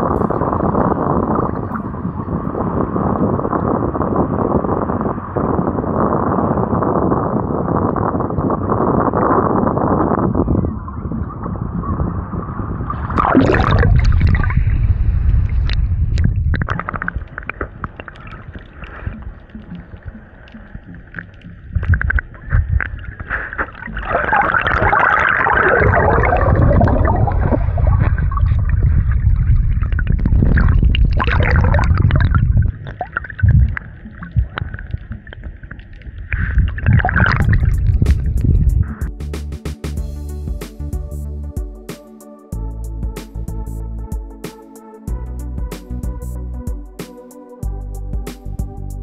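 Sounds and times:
wind buffeting microphone: 0:00.0 - 0:39.2.

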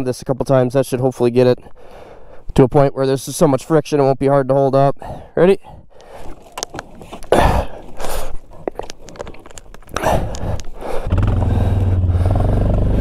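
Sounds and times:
atv engine running: 0:10.9 - 0:13.0.

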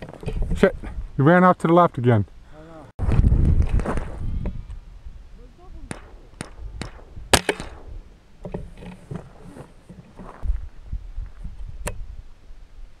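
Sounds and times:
loud crack: 0:05.8 - 0:08.1.

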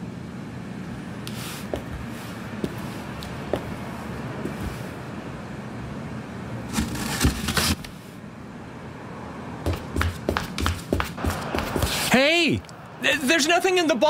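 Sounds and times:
quick footsteps: 0:01.7 - 0:03.8, 0:09.7 - 0:12.2
distant traffic rumble: 0:08.4 - 0:14.0.

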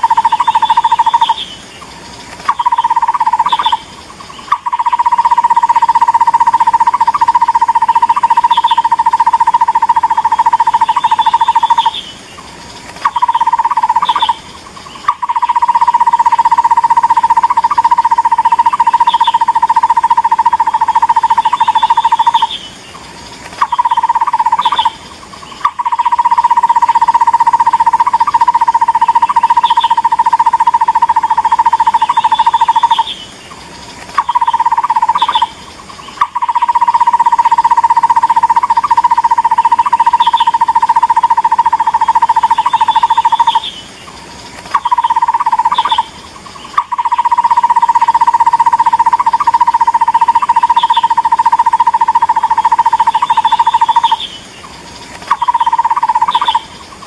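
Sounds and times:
barbet calling hollow notes: 0:00.0 - 0:01.4, 0:02.5 - 0:03.9, 0:04.5 - 0:12.0, 0:13.0 - 0:22.6, 0:23.6 - 0:25.0, 0:25.6 - 0:33.1, 0:34.2 - 0:35.6, 0:36.2 - 0:43.7, 0:44.7 - 0:54.3, 0:55.3 - 0:56.7
faint higher bird chirps: 0:00.0 - 0:27.2.

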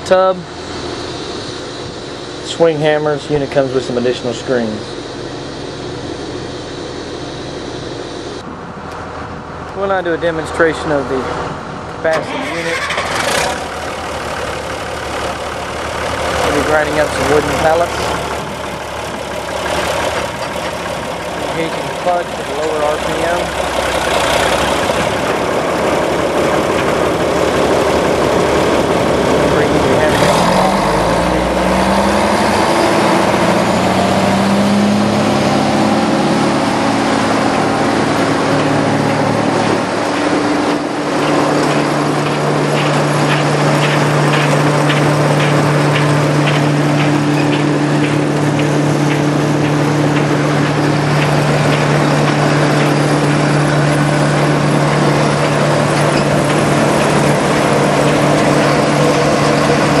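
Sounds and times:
diesel engine running: 0:00.0 - 1:00.0
regular ticking: 0:37.1 - 1:00.0.

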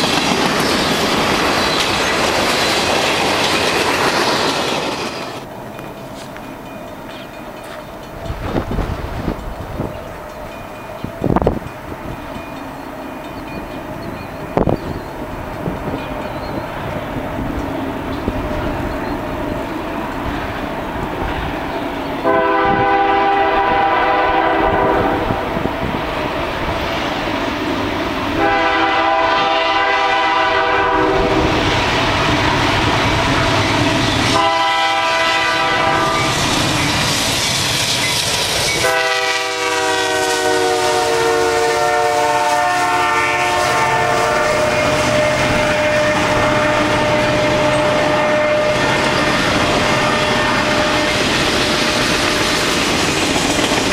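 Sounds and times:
train rumble and wheel clatter: 0:00.0 - 0:53.9
locomotive air horn blasts: 0:22.2 - 0:25.4, 0:28.4 - 0:31.5, 0:34.3 - 0:36.4, 0:38.8 - 0:51.9.

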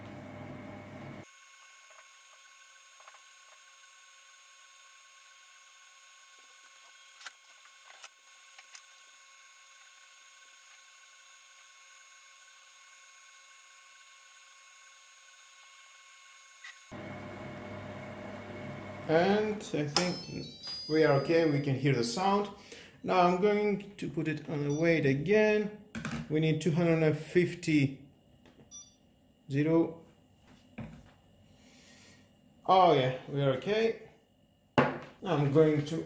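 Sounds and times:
food processor motor whine: 0:00.0 - 0:19.6.

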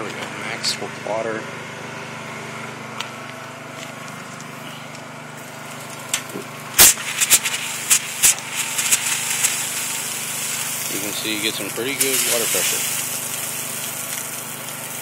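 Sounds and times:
generator and pump humming: 0:00.0 - 0:15.0
water spraying from shower head: 0:06.8 - 0:15.0.

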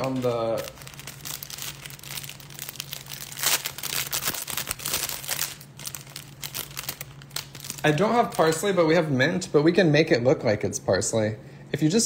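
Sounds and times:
crinkling and rustling: 0:00.0 - 0:08.8
steady low hum: 0:00.0 - 0:12.0.

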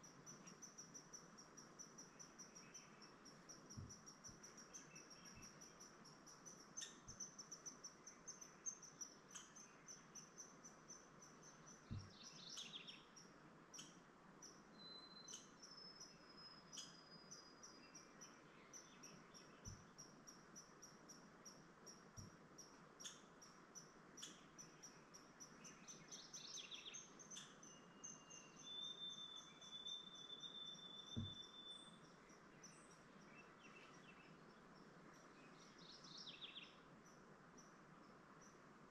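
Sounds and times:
soft low knocks: 0:03.7 - 0:04.0, 0:11.9 - 0:12.1, 0:31.2 - 0:31.4
whistled bird notes: 0:14.7 - 0:18.0, 0:25.6 - 0:34.3.

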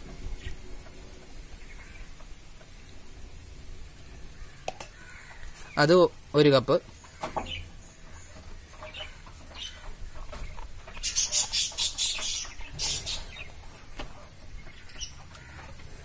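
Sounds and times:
hens clucking: 0:06.9 - 0:16.0.

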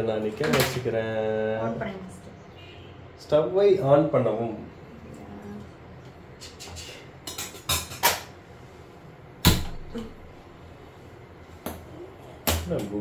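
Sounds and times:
pots and utensils clattering: 0:07.2 - 0:08.3.

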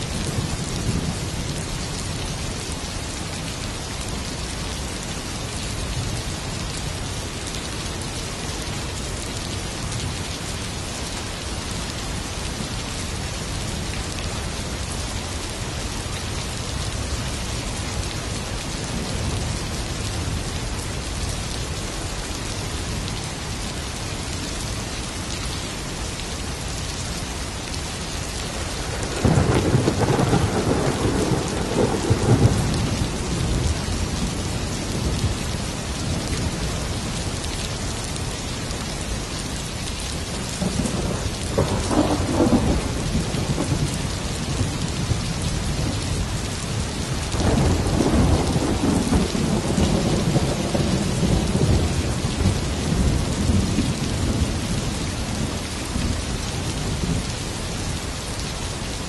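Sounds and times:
steady rain: 0:00.0 - 0:59.0
thunder rumbling: 0:28.8 - 0:34.4, 0:40.6 - 0:43.9, 0:47.4 - 0:54.7.

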